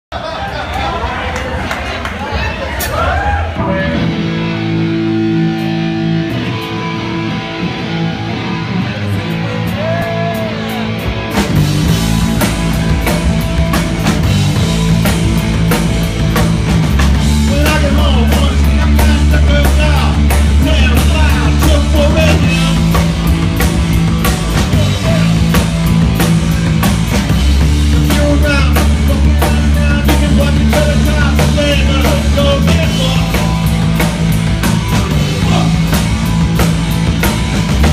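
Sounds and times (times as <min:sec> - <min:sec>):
bass guitar: 0:02.6 - 0:37.9
live rock band playing: 0:02.6 - 0:37.9
electric guitar: 0:03.3 - 0:37.9
drums with cymbals: 0:11.2 - 0:37.9.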